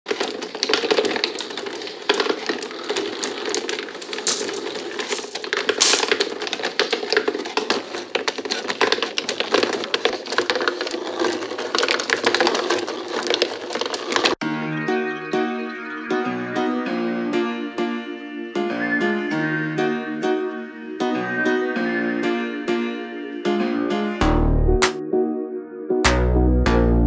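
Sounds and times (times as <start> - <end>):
glass marbles clicking and rolling: 0.1 - 7.8
cardboard step mechanism clatter: 0.1 - 14.4
piano music: 14.4 - 27.0.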